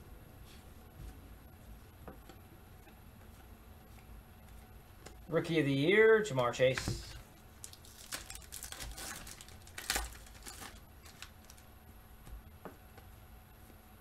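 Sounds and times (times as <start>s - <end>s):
cards shuffling and rustling: 6.7s - 11.6s.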